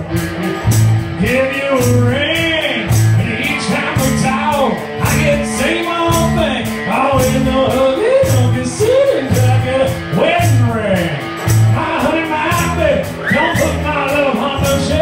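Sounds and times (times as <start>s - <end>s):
keyboard: 0.0s - 15.0s
steady drum beat: 0.0s - 15.0s
strummed guitar: 0.0s - 15.0s
male lead vocal: 1.2s - 15.0s.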